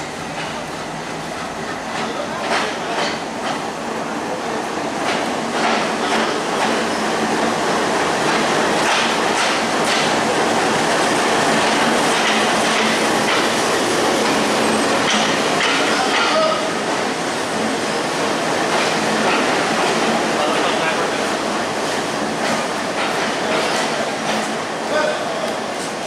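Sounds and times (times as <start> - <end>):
diesel locomotive engine running: 0.0 - 26.0
wheels clicking over rail joints: 15.0 - 16.6.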